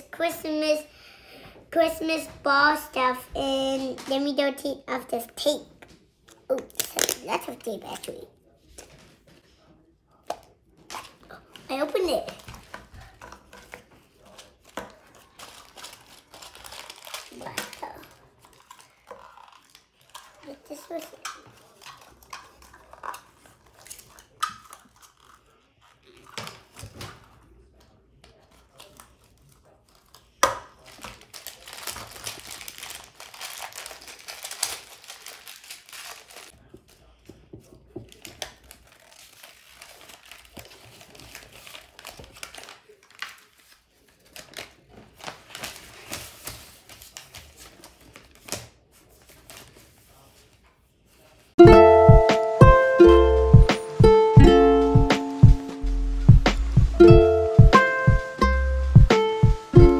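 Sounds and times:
plastic packaging crinkling: 6.7 - 8.2, 10.9 - 26.8, 28.3 - 50.3
paper sheet rustling: 30.8 - 51.6.

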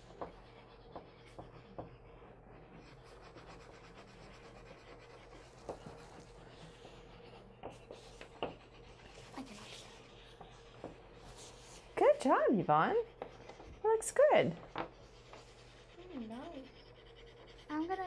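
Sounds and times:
chalk pastel scratching on paper: 0.0 - 18.0
light ticks of chalk on paper: 3.0 - 12.0.

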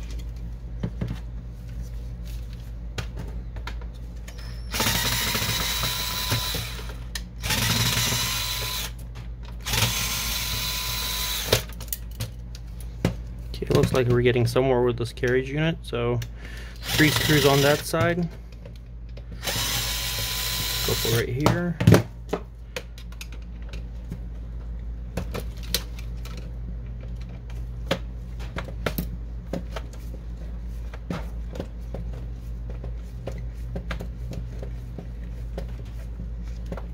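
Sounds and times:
parts being handled: 0.0 - 7.3, 11.1 - 14.4, 20.2 - 36.9
steady low hum: 0.0 - 36.9
cordless drill motor whining: 4.3 - 9.0, 9.6 - 11.7, 16.8 - 17.8, 19.4 - 21.2.

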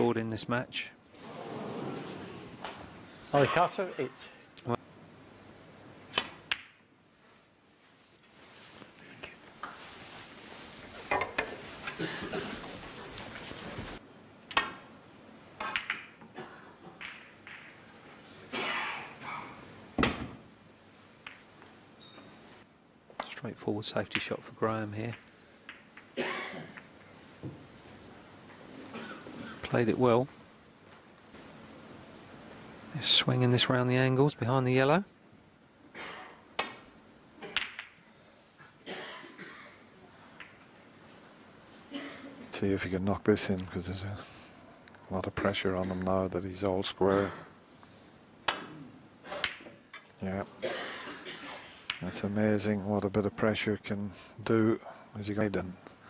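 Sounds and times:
audience coughing: 11.9 - 12.7, 50.6 - 51.8
snooker balls clicking: 14.5 - 14.8, 15.6 - 17.9, 21.2 - 21.7, 24.1 - 24.3, 25.0 - 27.6, 36.6 - 38.0, 40.4 - 40.7, 49.3 - 50.1, 51.8 - 52.2.

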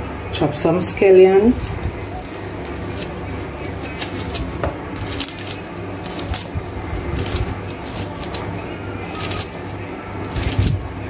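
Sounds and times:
steady low hum: 0.0 - 11.0
knife slicing scallion: 1.5 - 8.5.

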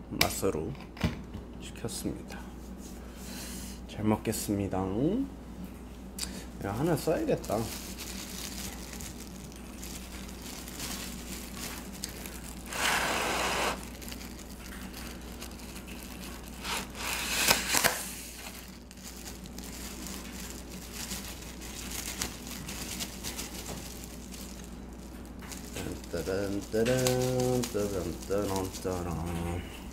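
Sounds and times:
packaging crinkling and rustling: 6.8 - 29.9.

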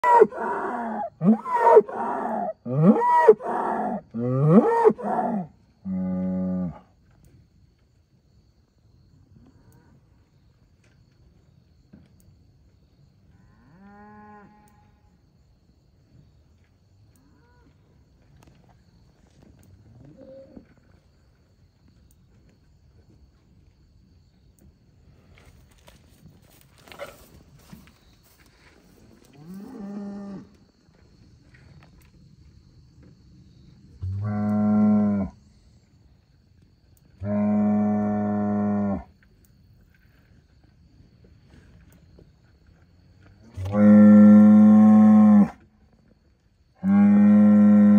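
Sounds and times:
bull bellowing: 0.0 - 6.8, 43.5 - 45.6.

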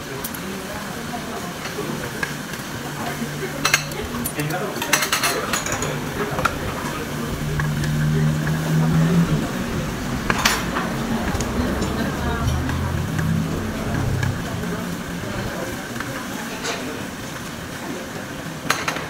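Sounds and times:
steady background hum: 2.1 - 18.0
cutlery clinking against dishes: 18.7 - 19.0.

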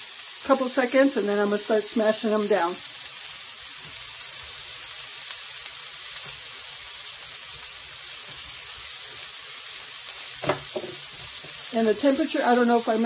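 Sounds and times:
meat sizzling on a griddle: 0.0 - 13.0.

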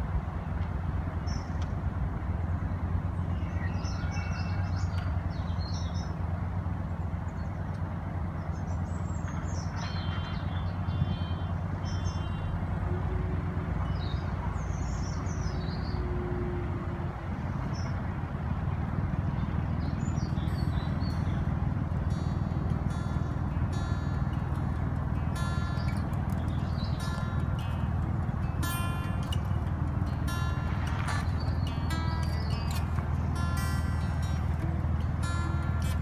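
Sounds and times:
boat engine humming: 0.0 - 36.0
small birds chirping: 6.8 - 12.8, 13.8 - 16.1, 19.2 - 36.0.

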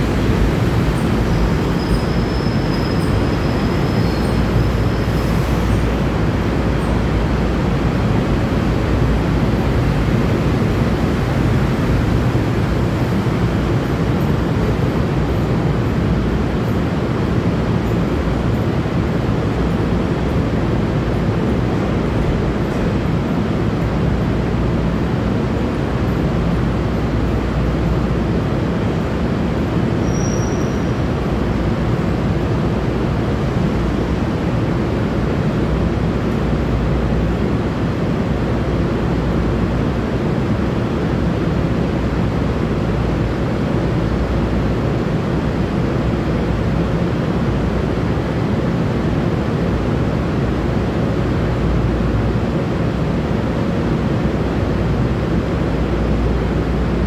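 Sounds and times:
underground platform rumble and hiss: 0.0 - 57.0.

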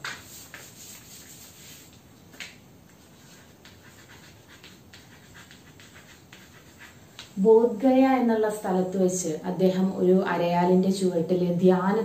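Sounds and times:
chalk scratching on blackboard: 0.0 - 2.0, 3.0 - 7.4.

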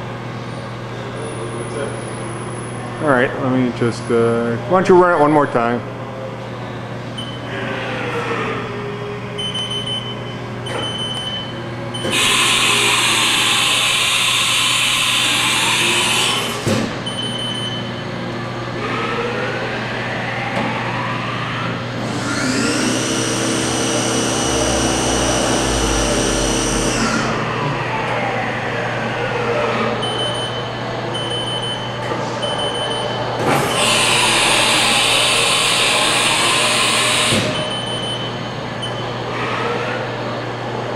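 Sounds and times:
axis drives winding up and down: 9.4 - 17.8, 20.1 - 27.6, 30.0 - 39.2
milling machine spindle whine: 12.0 - 16.6, 19.6 - 28.4, 29.8 - 39.3.

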